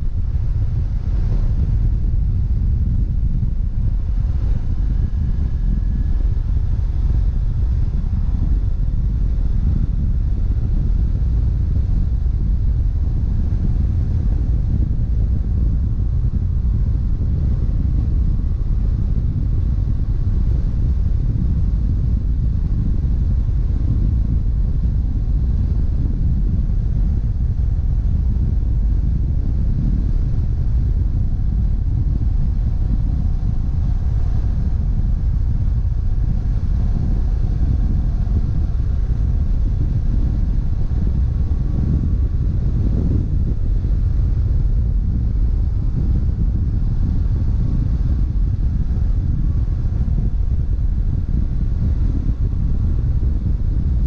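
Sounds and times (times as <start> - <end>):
wind and road noise: 0.0 - 54.0.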